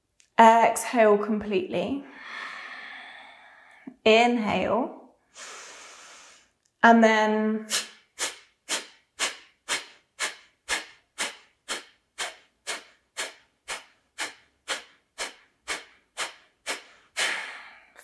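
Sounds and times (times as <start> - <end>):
woman forceful nasal exhales: 5.3 - 6.6, 7.7 - 18.0.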